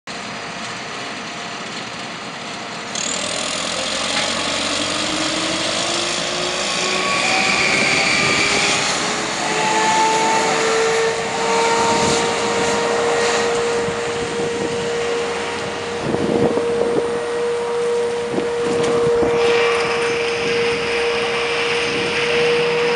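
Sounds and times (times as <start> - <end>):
street sweeper engine: 0.1 - 22.9
vacuum fan rushing hiss: 2.9 - 22.9.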